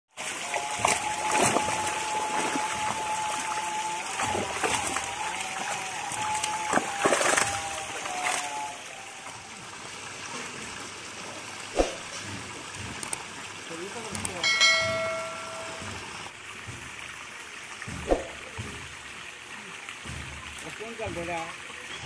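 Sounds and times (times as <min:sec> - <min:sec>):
sharp splashes: 0:00.2 - 0:09.0, 0:10.3 - 0:22.0
fish thrashing and splashing: 0:00.2 - 0:17.2
steady thin tone: 0:14.4 - 0:16.3.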